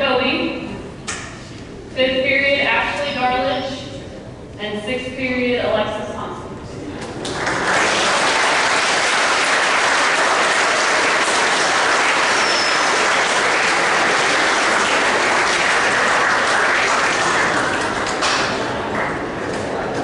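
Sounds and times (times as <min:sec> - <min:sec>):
crowd applauding: 0:07.0 - 0:20.0.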